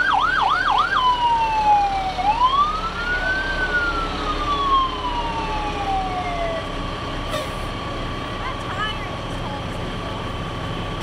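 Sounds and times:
emergency siren yelp and wail: 0.0 - 7.9.

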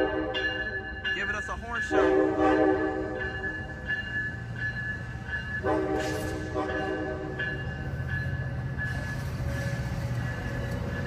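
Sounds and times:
train horn: 0.0 - 0.4, 1.8 - 3.4, 5.6 - 7.4
passenger train rumbling past: 0.0 - 11.0.

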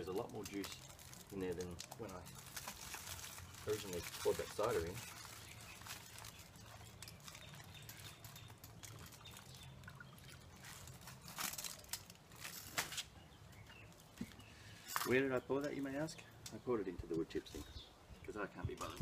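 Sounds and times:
aluminium foil crinkling: 0.0 - 13.2.

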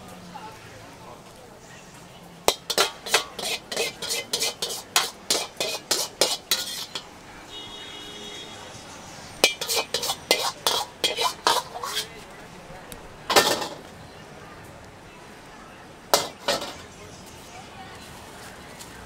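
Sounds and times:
metal ladle clanging against a wok: 2.5 - 7.2, 9.4 - 12.2, 13.3 - 13.9, 16.1 - 16.9.

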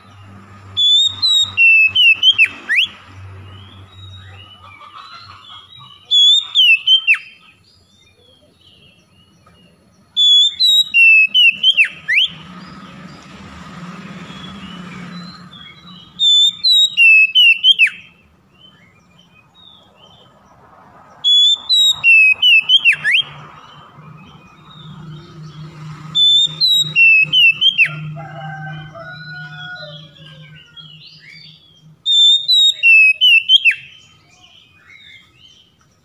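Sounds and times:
bird singing whistled phrases: 0.8 - 3.0, 6.0 - 7.4, 10.2 - 12.4, 14.3 - 18.9, 21.3 - 23.4, 26.2 - 28.1, 29.9 - 35.6.

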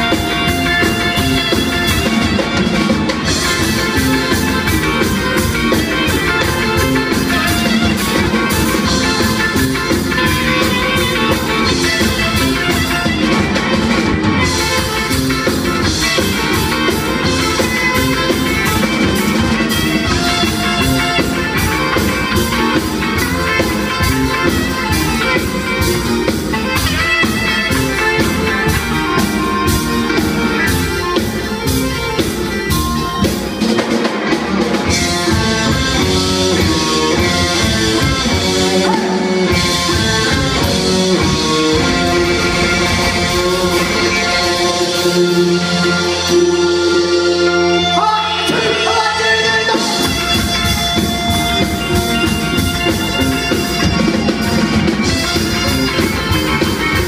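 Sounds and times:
live ska band playing: 0.0 - 57.0.

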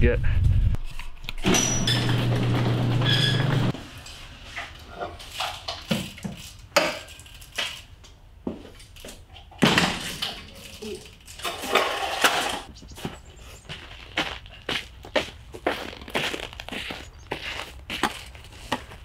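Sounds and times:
footsteps crunching on snow: 12.8 - 19.0.

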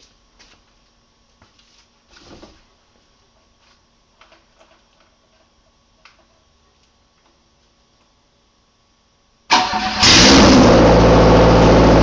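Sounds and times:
faint clicks and knocks: 3.3 - 8.2.

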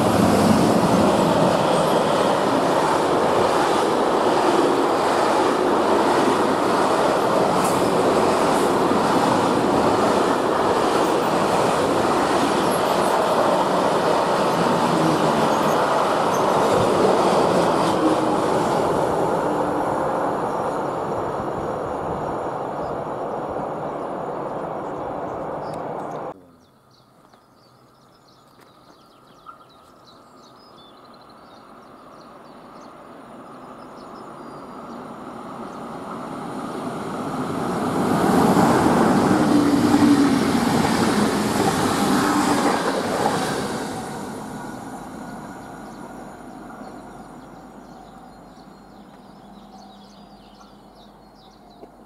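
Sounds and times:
passenger train passing: 0.0 - 26.4, 31.1 - 52.0
faint bird chirps: 26.1 - 33.0.

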